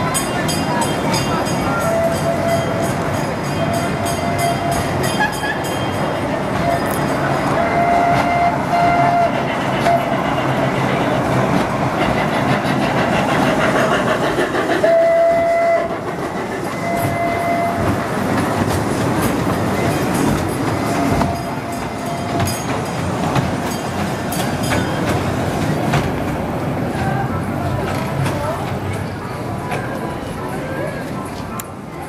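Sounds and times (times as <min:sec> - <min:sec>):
toy train running on track: 0:00.0 - 0:25.7
train whistle toots: 0:01.8 - 0:02.9, 0:03.6 - 0:05.6, 0:06.5 - 0:10.2, 0:14.8 - 0:16.0, 0:16.7 - 0:18.0.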